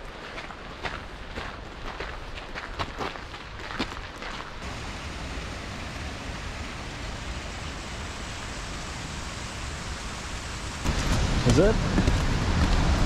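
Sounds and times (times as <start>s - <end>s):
footsteps: 0.0s - 4.6s, 10.9s - 13.0s
waterfall rushing: 4.6s - 13.0s.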